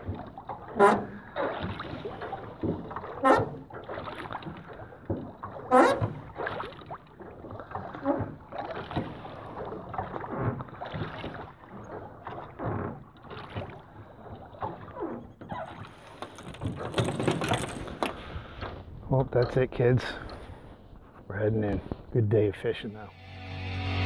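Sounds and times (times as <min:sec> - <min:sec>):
oars splashing and knocking: 0:00.0 - 0:22.2.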